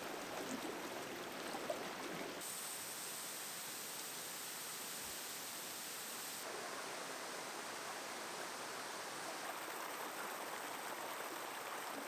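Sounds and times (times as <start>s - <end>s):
stream water rushing: 6.4s - 12.0s.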